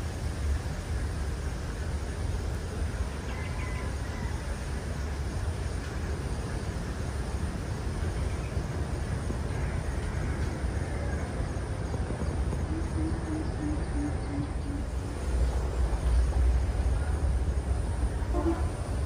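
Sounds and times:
wind rumbling on microphone: 0:00.0 - 0:19.0
bird hooting: 0:12.6 - 0:15.1.

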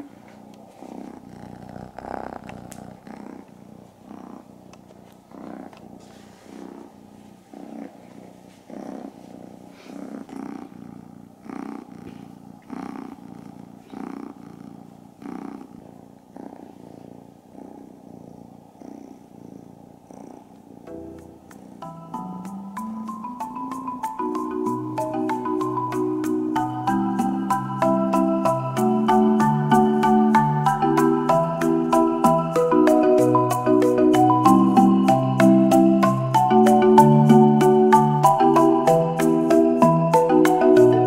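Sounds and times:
kitten purring: 0:00.0 - 0:41.0.

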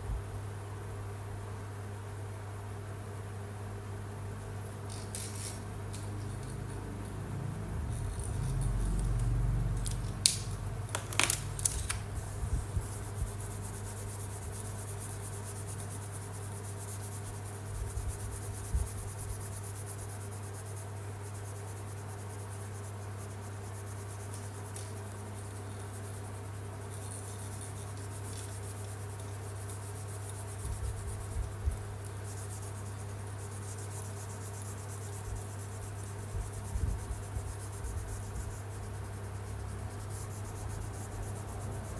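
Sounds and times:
steady low hum: 0:00.0 - 0:41.9
marker scratching on paper: 0:04.9 - 0:06.7.

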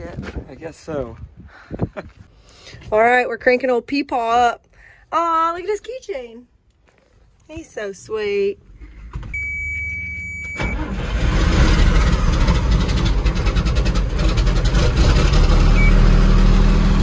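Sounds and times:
truck engine idling: 0:09.6 - 0:17.0
starter cranking engine: 0:10.5 - 0:15.9.

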